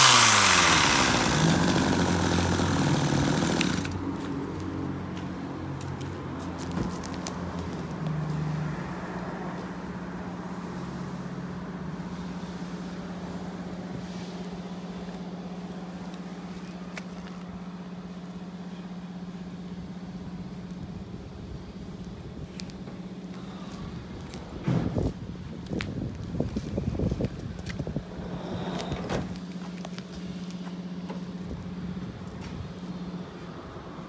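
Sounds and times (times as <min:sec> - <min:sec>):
hedge trimmer engine running: 0:00.0 - 0:04.2.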